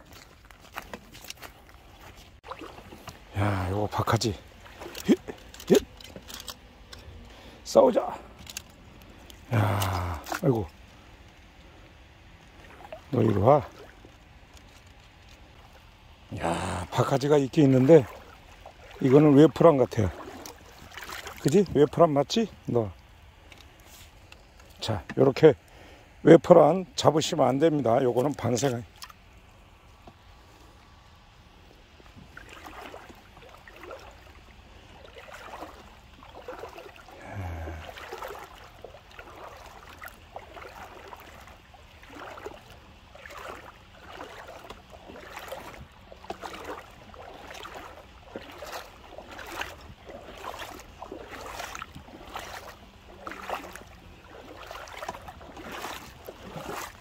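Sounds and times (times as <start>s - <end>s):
footsteps wading through water: 0.0s - 57.0s.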